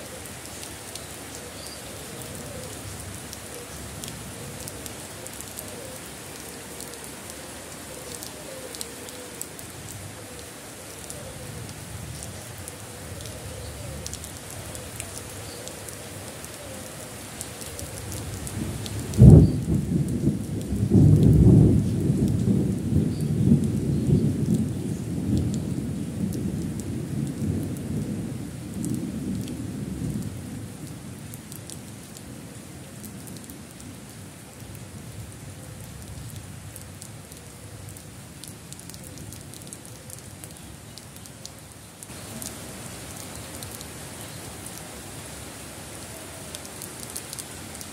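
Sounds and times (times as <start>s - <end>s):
rain on concrete and plants: 0.0s - 47.9s
thunder rumbling: 18.5s - 31.1s
thunderclap: 18.6s - 25.6s.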